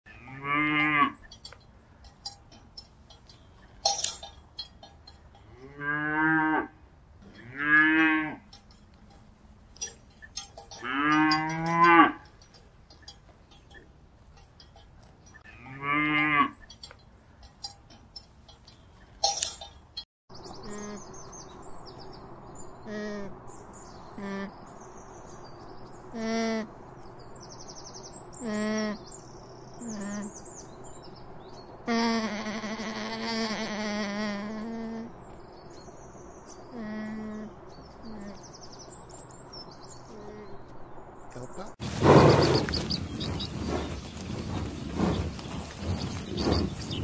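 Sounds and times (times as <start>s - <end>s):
cattle mooing: 0.1s - 1.6s, 5.1s - 8.8s, 9.8s - 12.6s, 15.4s - 16.8s
sharp clinks: 0.8s - 5.7s, 7.2s - 15.5s, 16.2s - 20.1s.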